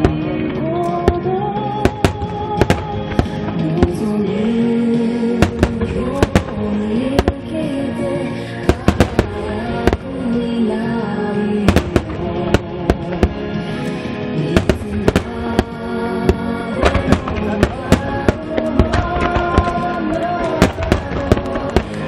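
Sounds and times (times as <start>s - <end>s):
melodic music: 0.0s - 22.0s
firework shells bursting: 1.9s - 4.1s, 5.4s - 7.5s, 8.6s - 10.2s, 11.7s - 13.5s, 14.5s - 22.0s.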